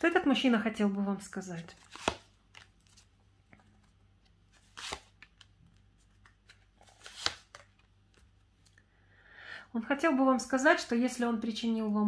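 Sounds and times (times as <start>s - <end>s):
card sliding papery: 4.6s - 5.2s, 6.8s - 7.6s.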